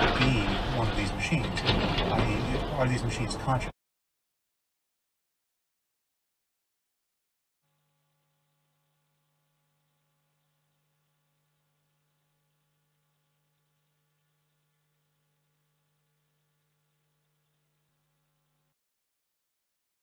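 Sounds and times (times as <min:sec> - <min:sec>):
faint electrical hum with hiss: 0:07.8 - 0:18.7.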